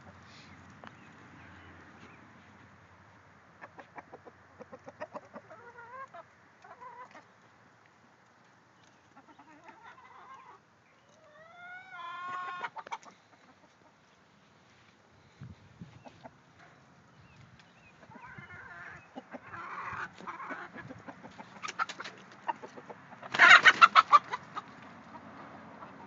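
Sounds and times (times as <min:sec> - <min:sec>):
chickens clucking: 0:03.5 - 0:14.5, 0:15.2 - 0:26.0
chicken squawking: 0:11.2 - 0:13.1, 0:18.0 - 0:24.6.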